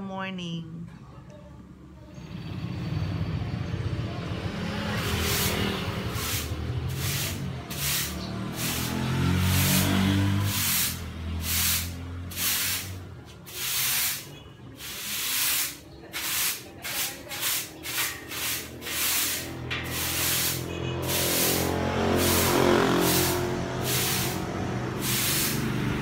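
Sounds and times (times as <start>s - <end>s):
vehicle engine droning: 2.0s - 13.5s, 17.8s - 26.0s
broom sweeping hard floor: 4.9s - 26.0s.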